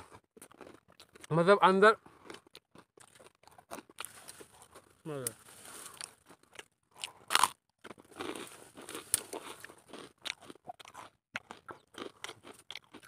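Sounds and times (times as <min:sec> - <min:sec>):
dry twigs crunching and snapping: 0:08.1 - 0:10.5.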